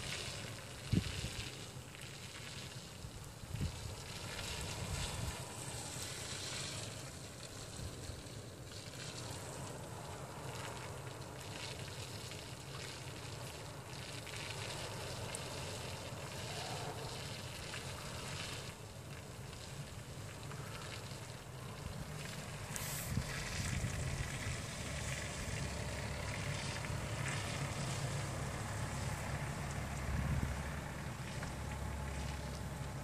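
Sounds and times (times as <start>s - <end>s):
wind rumble on microphone: 0.8s - 1.6s, 3.0s - 6.8s, 21.6s - 33.0s.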